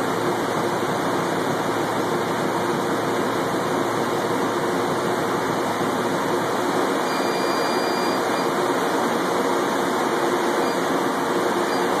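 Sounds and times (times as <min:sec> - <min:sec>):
faint high whine: 0:06.4 - 0:12.0.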